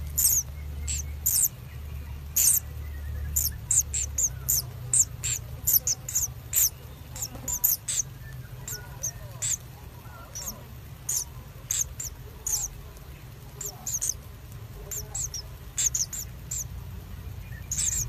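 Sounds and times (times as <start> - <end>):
nestlings squeaky begging chirps: 0.0 - 18.0.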